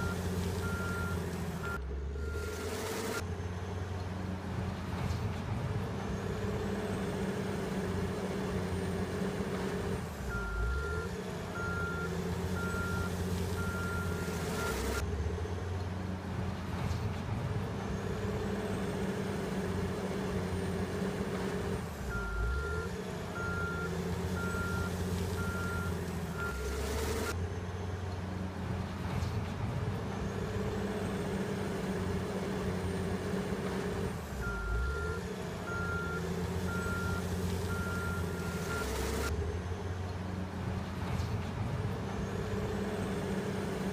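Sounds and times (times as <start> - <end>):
reversing alarm beeping: 0.0 - 2.6, 10.3 - 15.0, 22.1 - 26.7, 34.4 - 39.3
diesel engine under load: 0.0 - 43.9.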